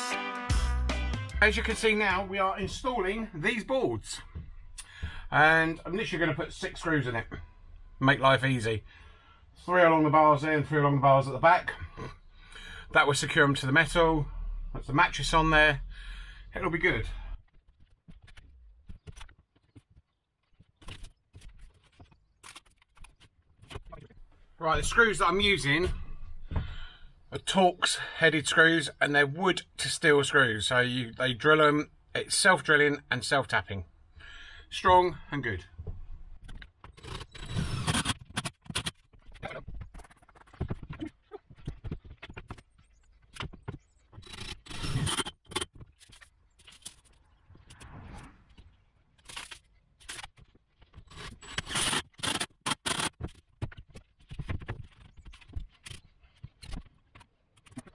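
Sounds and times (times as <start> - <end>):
cordless drill driving a screw: 37.0 - 38.2, 44.2 - 45.4, 51.1 - 53.1
tools knocking and scraping plywood: 50.0 - 57.9.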